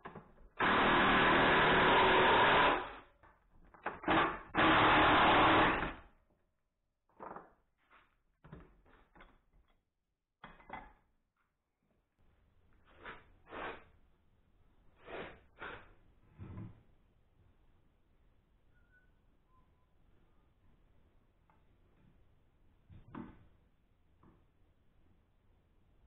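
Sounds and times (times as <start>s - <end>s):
impact driver driving screw into wood: 0.6s - 3.0s, 3.8s - 6.0s.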